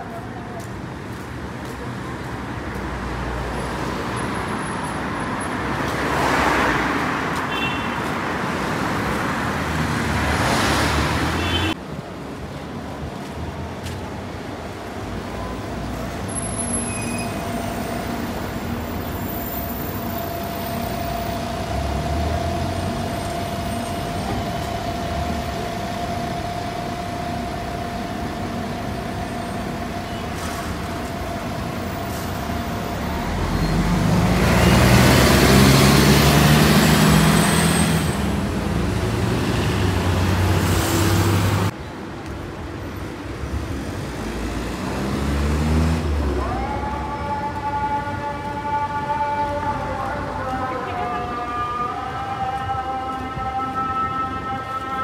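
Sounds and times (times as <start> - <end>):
street traffic: 0.0 - 55.0
bus engine hum: 10.9 - 51.6.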